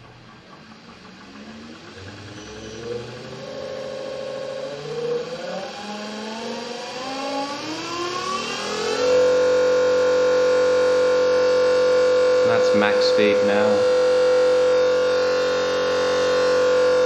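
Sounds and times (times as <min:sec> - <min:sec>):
electric motor whine rising: 0:00.0 - 0:17.0.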